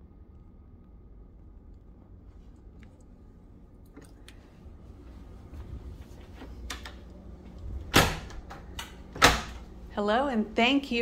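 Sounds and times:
footsteps: 4.9 - 6.7
heavy door shutting thud: 7.8 - 9.7.

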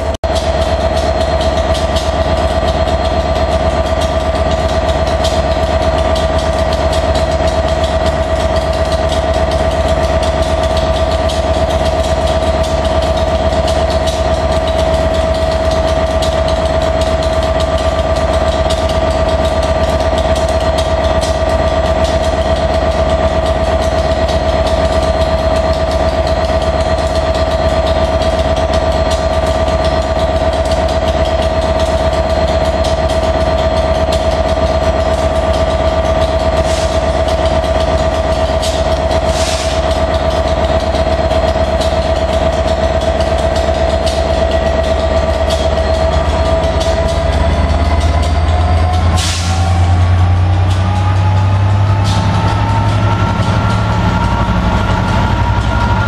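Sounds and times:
constant high whine: 0.0 - 56.0
locomotive engine idling: 0.0 - 56.0.

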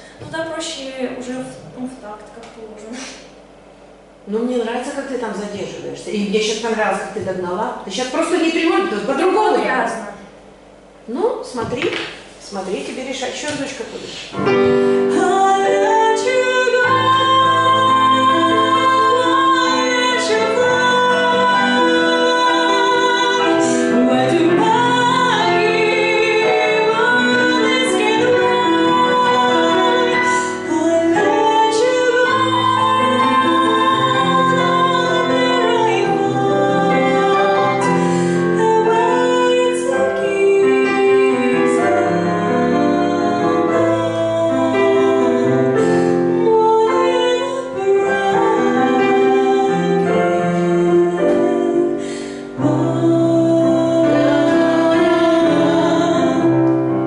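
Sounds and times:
digital piano chords: 14.3 - 57.0
woman singing into a microphone: 15.0 - 56.7.

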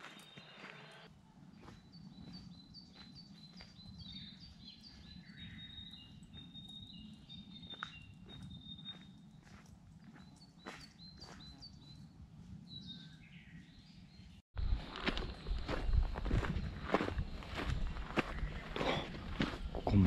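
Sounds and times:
footsteps on ground: 0.0 - 5.2, 7.6 - 11.9, 14.6 - 20.0
bird chirping: 0.0 - 14.4, 15.2 - 20.0.

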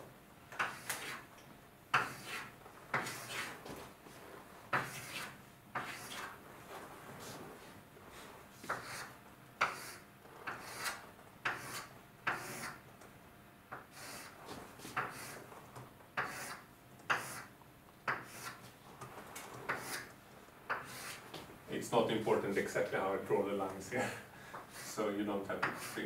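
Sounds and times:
rubbing strokes on a board: 0.6 - 1.3, 1.9 - 12.8, 13.8 - 15.6, 16.2 - 17.5, 18.1 - 18.8, 19.5 - 21.4, 24.6 - 26.0.

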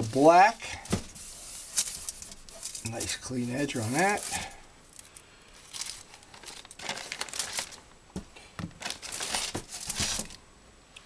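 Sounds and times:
tape and plastic crinkling: 0.8 - 8.0, 8.6 - 10.4.

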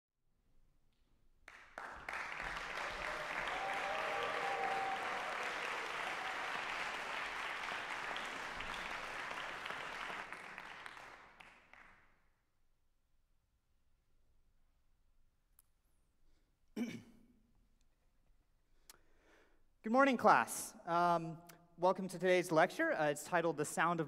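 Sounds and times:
audience applauding: 1.5 - 12.0.

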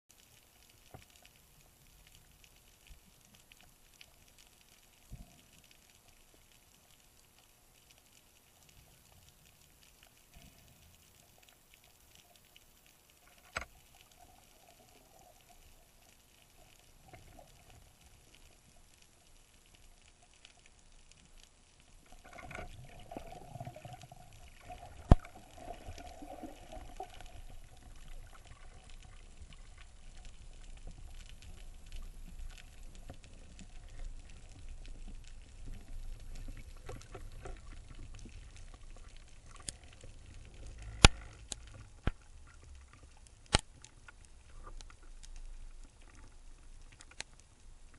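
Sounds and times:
faint underwater clicks: 0.1 - 47.9
underwater churning movement: 22.0 - 43.1.

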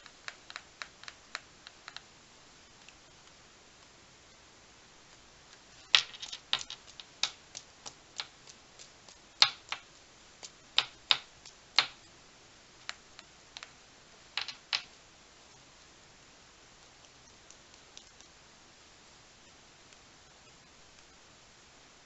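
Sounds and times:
paintbrush tapping clicks: 0.0 - 2.1, 6.2 - 12.1, 16.8 - 18.4.

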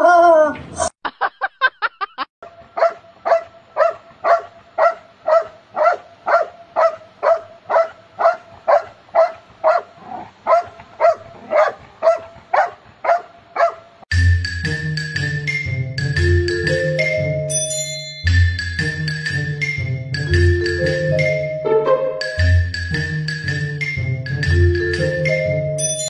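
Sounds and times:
dog barking: 2.8 - 14.0.

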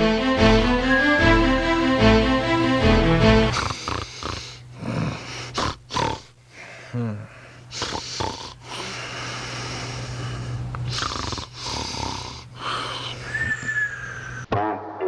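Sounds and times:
falling whistle: 0.8 - 1.6, 13.3 - 14.5
person snoring: 3.5 - 6.3, 6.9 - 9.1, 10.8 - 14.4.

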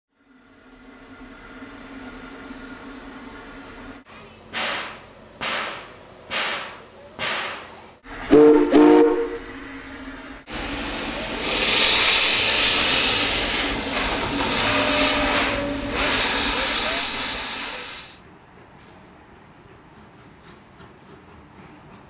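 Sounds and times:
steam locomotive exhaust chuffs: 0.3 - 22.0
steam whistle toots: 8.2 - 9.7, 11.6 - 18.2
steam hissing: 10.5 - 18.2.

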